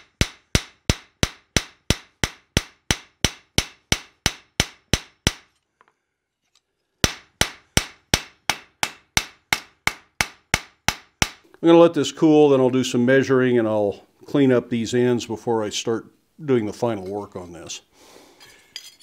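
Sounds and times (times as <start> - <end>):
hammer striking steel on anvil: 0.0 - 5.5, 7.0 - 11.4.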